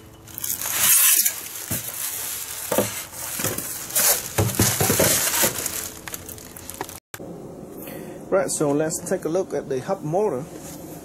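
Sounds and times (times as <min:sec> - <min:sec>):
plastic wrapping crinkling: 0:00.0 - 0:07.0.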